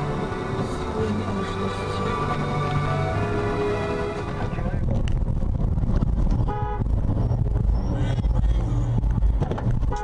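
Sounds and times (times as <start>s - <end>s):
car engine and road rumble: 0.0s - 10.0s
car horn toot: 6.4s - 6.9s.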